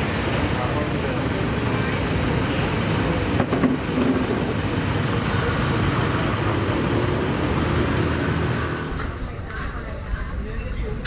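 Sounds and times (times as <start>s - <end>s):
motor vehicles rumbling past: 0.0s - 10.2s.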